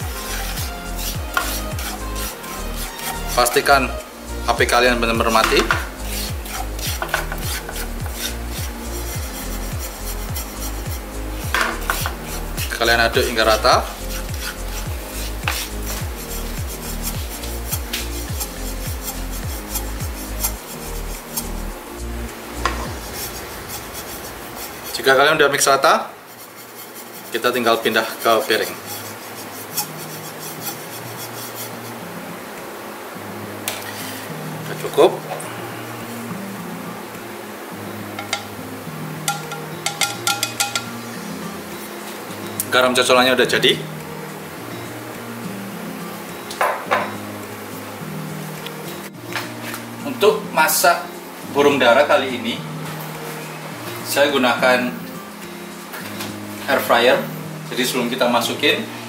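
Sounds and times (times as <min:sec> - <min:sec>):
spatula scraping salt in pan: 0:00.0 - 0:04.0, 0:05.3 - 0:21.7, 0:22.6 - 0:32.0
background music with beat: 0:00.0 - 0:25.3, 0:33.6 - 0:59.0
pan clicking on stove grate: 0:38.2 - 0:38.5, 0:39.3 - 0:40.9.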